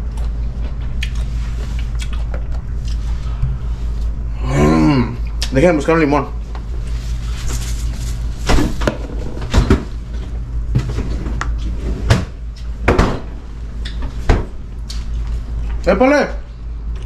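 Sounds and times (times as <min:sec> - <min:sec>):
steady low hum: 0:00.0 - 0:17.0
kitchen knocks and clunks: 0:08.5 - 0:09.9, 0:12.0 - 0:13.3.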